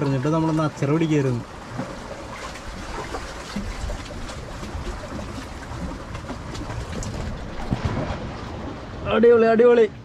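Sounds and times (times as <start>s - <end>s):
seawater washing among concrete: 0.0s - 9.0s
wind rumble on microphone: 2.1s - 9.3s.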